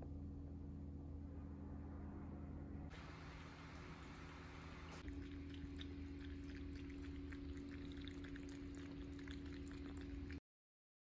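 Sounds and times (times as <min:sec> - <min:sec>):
low steady hum: 0:00.0 - 0:10.4
cat lapping water: 0:03.4 - 0:10.4.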